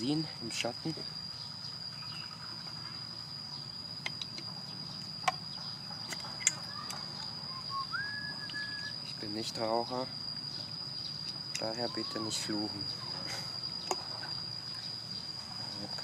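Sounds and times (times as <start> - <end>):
high-pitched insect trill: 0.0 - 16.0
whistle-like tone rising: 6.7 - 9.0, 11.7 - 13.2.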